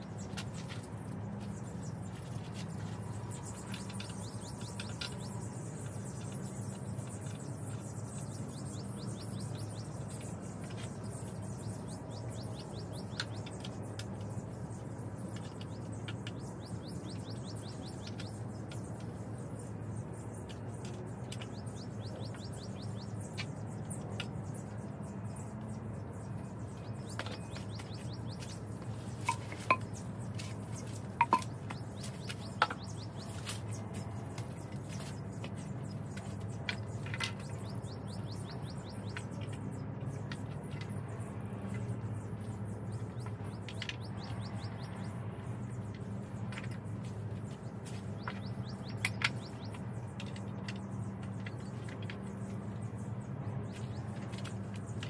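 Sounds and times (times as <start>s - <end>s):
small birds chirping: 0.0s - 55.0s
steady low hum: 0.0s - 55.0s
sharp wooden knocks: 31.2s - 31.8s.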